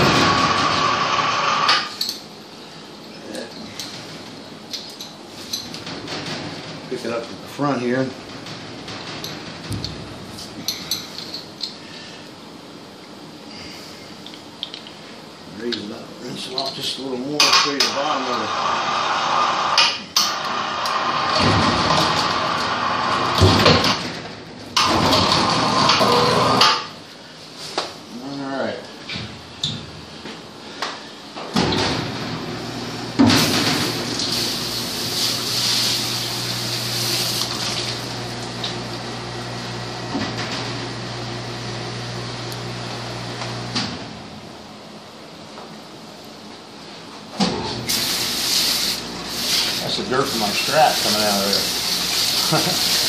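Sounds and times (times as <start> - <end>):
spray rinse hissing: 33.4 - 38.0, 47.9 - 53.0.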